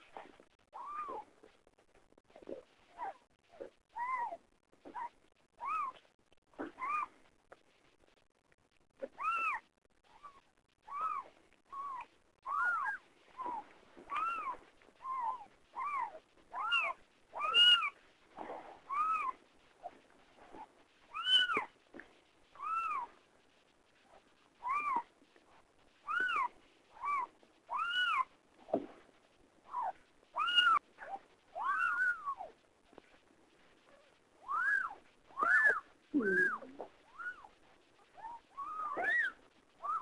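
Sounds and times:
kittens mewing: 34.5s - 37.5s, 38.2s - 40.0s.

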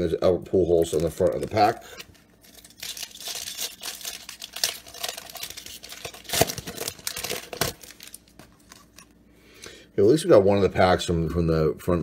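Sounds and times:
wrapper tearing and crinkling: 0.7s - 9.1s.

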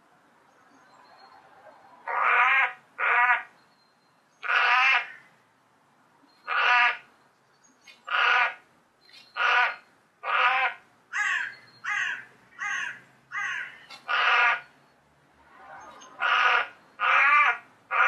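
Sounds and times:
crow cawing: 2.1s - 3.5s, 4.4s - 5.2s, 6.5s - 7.0s, 8.1s - 8.6s, 9.4s - 14.7s, 16.2s - 18.0s.

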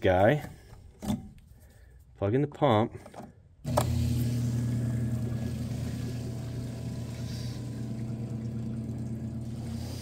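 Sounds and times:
electric water pump humming: 3.6s - 10.0s.

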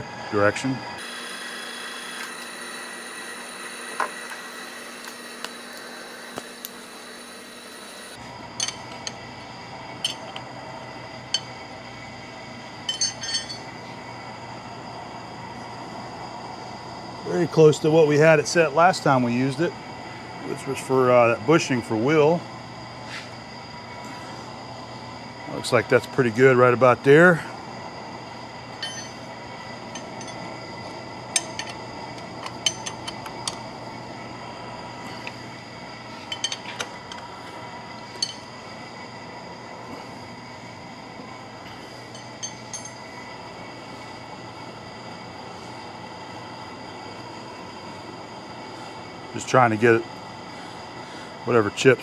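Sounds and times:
steady background hum: 0.0s - 52.0s
sharp metallic clinks and knocks: 8.6s - 9.2s, 10.0s - 10.4s, 12.9s - 13.7s, 28.8s - 29.3s, 29.9s - 30.5s, 31.3s - 33.6s, 36.2s - 37.2s, 38.1s - 38.5s, 42.1s - 43.1s.

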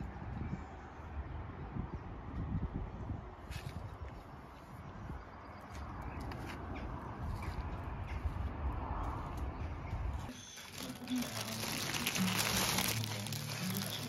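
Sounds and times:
low rumbling outdoor noise: 0.0s - 14.0s
crinkling and rustling: 10.3s - 14.0s.

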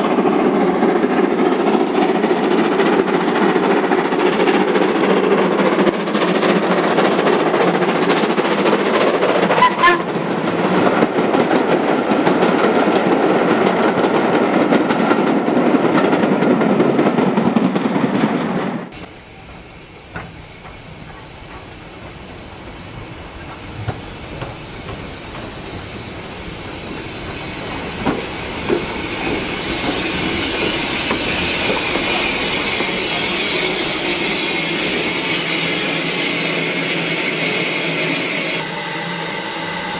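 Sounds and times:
high steam hiss: 19.0s - 39.9s
steam locomotive exhaust: 19.0s - 39.9s.

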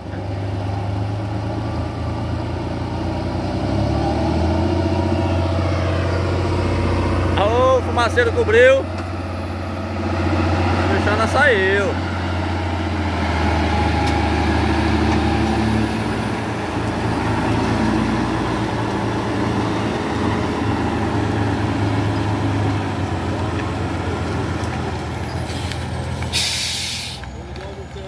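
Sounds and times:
heavy diesel engines under load: 0.0s - 28.0s
short hiss: 25.5s - 27.2s.

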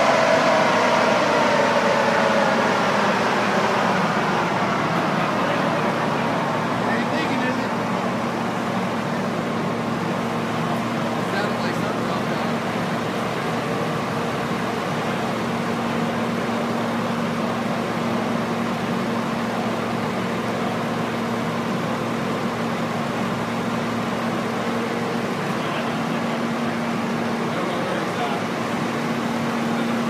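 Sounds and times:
cooling fan rushing: 0.0s - 30.0s.

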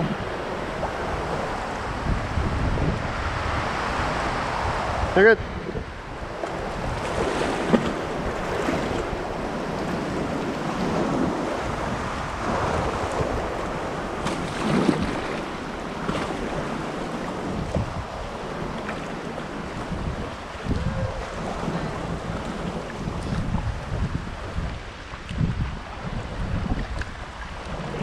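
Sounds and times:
wind rumbling on microphone: 0.0s - 28.0s
kayak paddle splashing: 6.2s - 28.0s.

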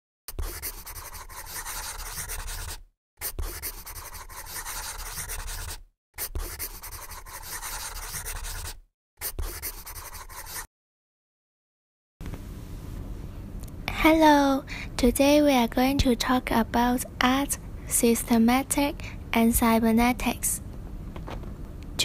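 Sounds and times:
felt-tip marker scratching: 0.3s - 10.7s.

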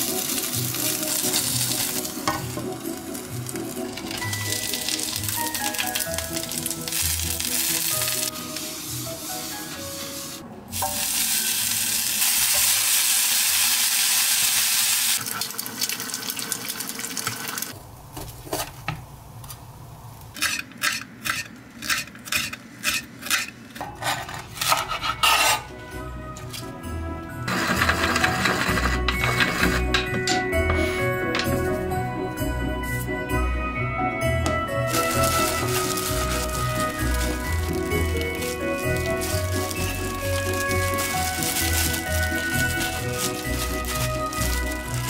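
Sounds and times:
background music: 0.0s - 12.2s, 24.7s - 45.0s
patties sizzling in a pan: 10.8s - 15.2s.

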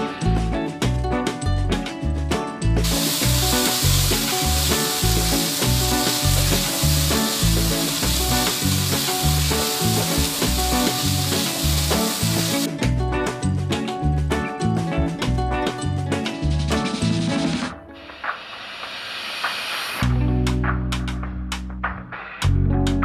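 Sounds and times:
background music with beat: 0.0s - 23.0s
noodles sizzling in hot oil: 2.8s - 12.7s.

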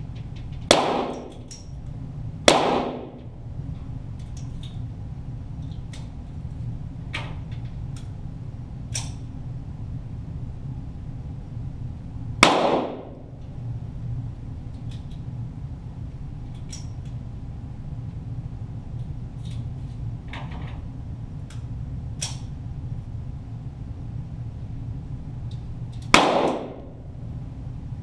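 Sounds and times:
steady low hum: 0.0s - 28.0s
pistol shot: 0.7s - 1.3s, 2.5s - 3.2s, 12.4s - 13.2s, 26.1s - 26.9s.

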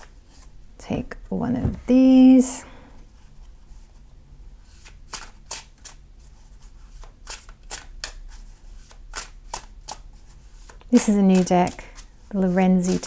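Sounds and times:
cards being shuffled: 4.7s - 13.0s.

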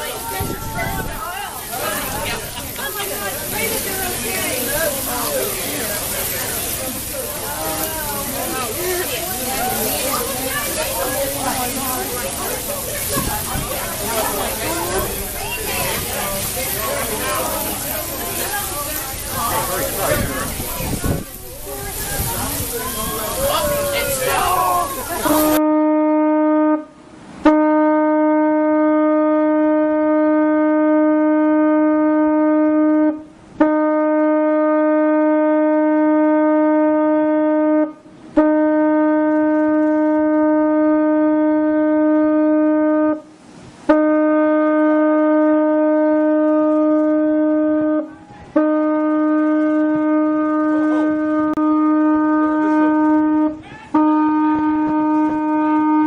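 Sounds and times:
boat horn blasts: 23.6s - 56.0s.

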